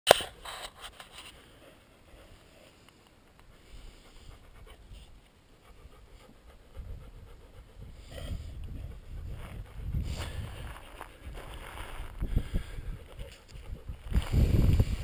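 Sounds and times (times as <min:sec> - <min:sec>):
wind buffeting microphone: 0:06.5 - 0:15.0.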